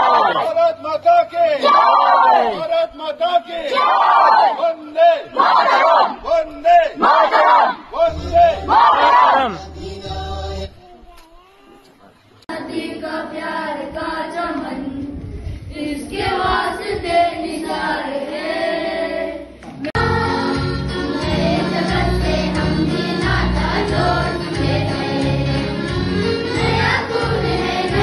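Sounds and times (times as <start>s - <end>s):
children singing in chorus: 12.5s - 15.2s, 15.8s - 28.0s.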